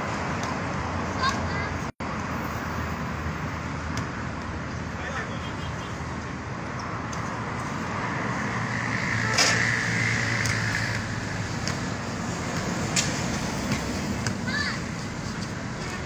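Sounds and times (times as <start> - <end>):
vehicle passing: 6.0 - 16.0
basketball bouncing on court: 13.6 - 14.5.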